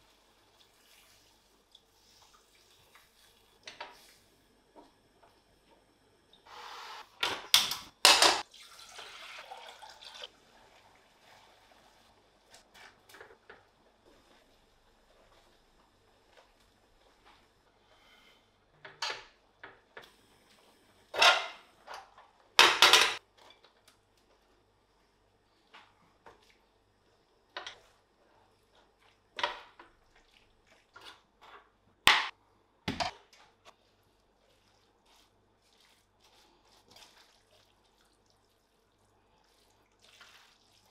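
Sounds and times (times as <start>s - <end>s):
water pouring into a saucepan: 8.4s - 12.5s, 34.5s - 40.9s.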